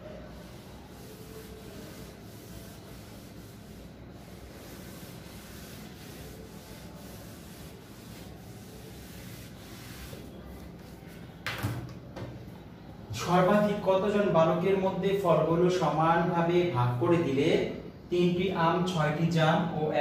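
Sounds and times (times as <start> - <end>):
eraser wiping whiteboard: 0.0 - 11.2.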